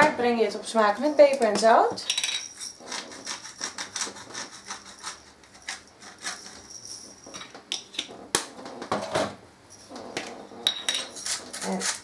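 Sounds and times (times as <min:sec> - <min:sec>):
pepper mill grinding: 0:10.6 - 0:12.0.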